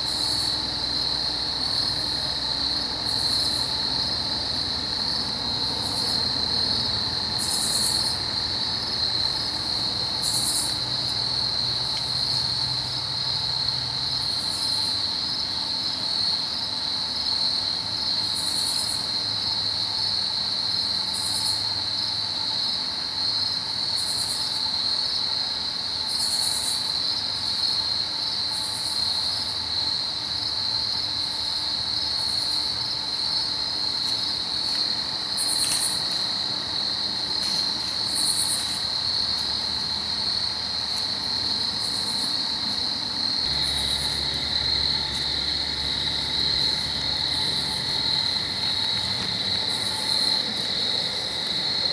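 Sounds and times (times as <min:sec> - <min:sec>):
crickets trilling: 0:00.0 - 0:51.9
insect rasps: 0:03.0 - 0:15.0, 0:31.4 - 0:51.9.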